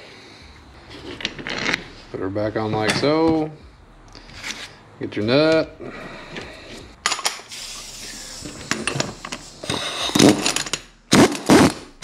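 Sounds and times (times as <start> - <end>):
steel parts and tools clattering: 0.9 - 3.5, 6.3 - 11.0.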